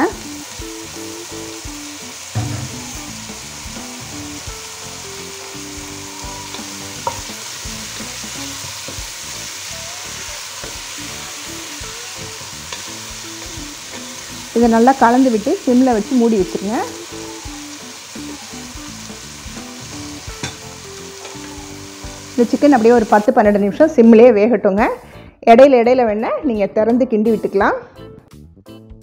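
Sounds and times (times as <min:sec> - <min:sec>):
gravy sizzling in a pan: 0:00.0 - 0:23.6
thump: 0:02.4 - 0:03.5.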